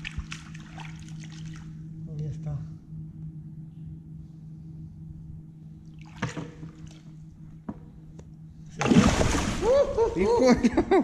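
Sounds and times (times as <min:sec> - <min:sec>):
water splashing and sloshing: 0:00.0 - 0:01.8, 0:05.9 - 0:07.1, 0:08.7 - 0:10.0
steady low hum: 0:00.0 - 0:11.0.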